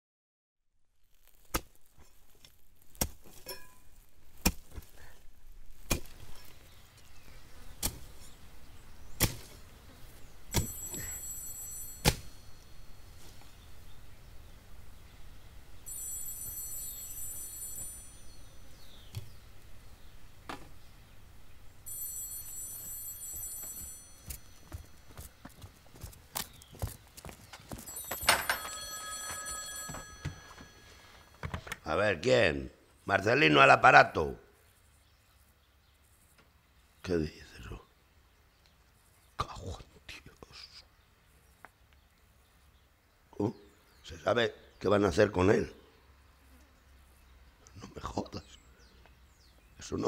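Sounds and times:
hand tool chopping into ground: 3.0s - 3.8s, 4.4s - 4.9s, 5.8s - 6.6s, 7.8s - 8.4s, 9.1s - 9.6s, 10.5s - 11.2s, 12.0s - 12.4s
telephone ringing: 10.6s - 12.9s, 15.9s - 18.3s, 21.9s - 25.1s, 27.8s - 31.5s.

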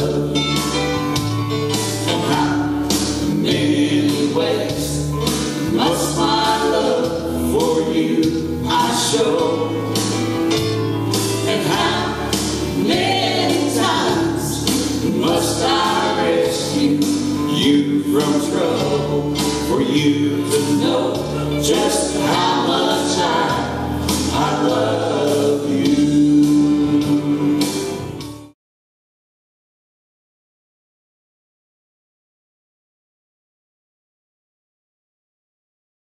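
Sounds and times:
vocal trio singing in harmony: 0.0s - 0.9s, 2.0s - 10.5s, 11.3s - 28.2s
instrumental accompaniment: 0.0s - 28.6s.

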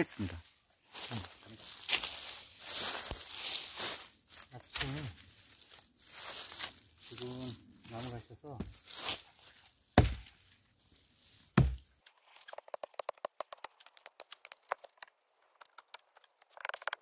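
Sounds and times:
dry twigs and leaves crackling: 0.0s - 17.0s
hatchet chopping wood: 10.0s - 10.3s, 11.6s - 11.9s.

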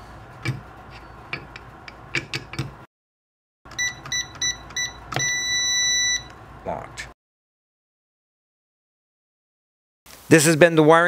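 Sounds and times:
keypad beeps: 3.7s - 6.3s
long beep: 3.8s - 6.3s.

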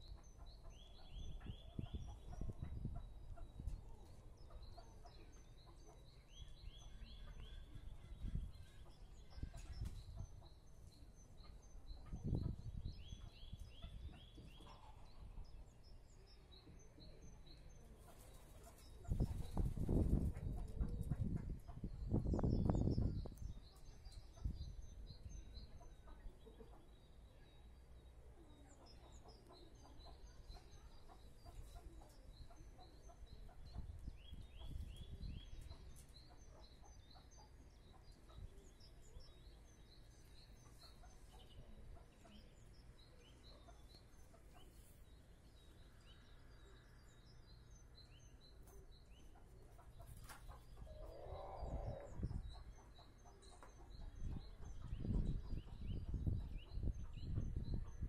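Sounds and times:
small birds chirping: 0.0s - 58.0s
chicken clucking: 0.2s - 10.6s, 11.4s - 15.3s, 17.7s - 24.6s, 28.3s - 39.3s, 40.2s - 45.1s, 48.6s - 58.0s.

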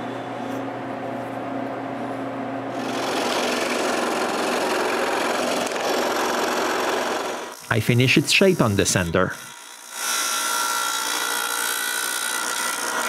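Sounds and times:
scroll saw motor hum: 2.7s - 13.0s
saw blade rasping through wood: 2.8s - 13.0s.

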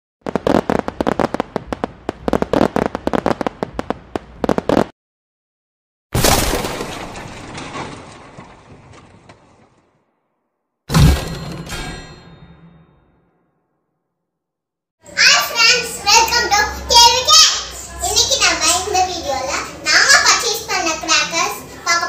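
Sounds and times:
firecrackers cracking: 0.2s - 4.9s
loud crash: 6.2s - 9.2s, 10.9s - 13.3s
sharp hit: 10.9s - 13.3s.

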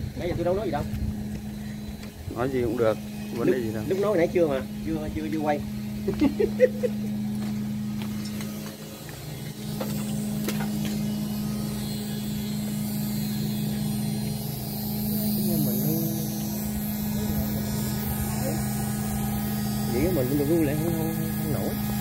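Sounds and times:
aerators humming: 0.0s - 22.0s.

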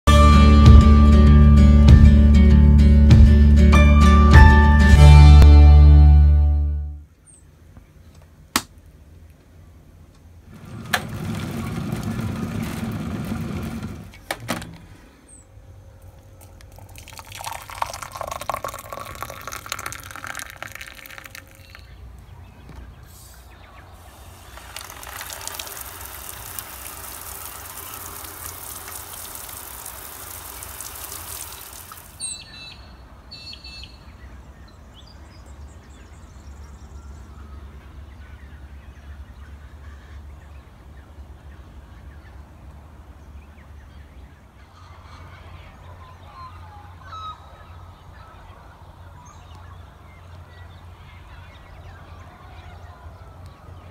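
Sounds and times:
outdoor shower hissing: 16.4s - 21.8s, 23.1s - 32.6s
water running: 16.4s - 21.9s, 24.0s - 32.3s
high bird chirps: 20.9s - 28.6s, 30.1s - 34.2s.

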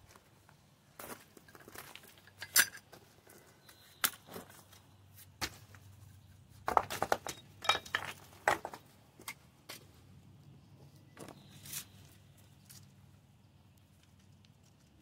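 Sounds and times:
stone pieces and tools clinking: 2.2s - 2.9s, 7.2s - 8.2s.

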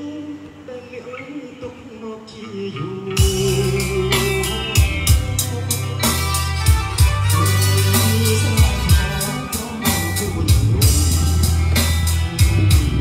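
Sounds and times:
song over party speaker: 0.0s - 13.0s
heavy bass and drum hits: 3.2s - 13.0s.

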